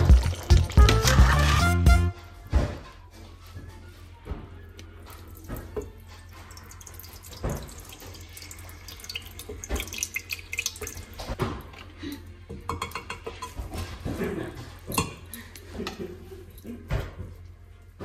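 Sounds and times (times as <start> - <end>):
tap running into sink: 7.3 - 8.2.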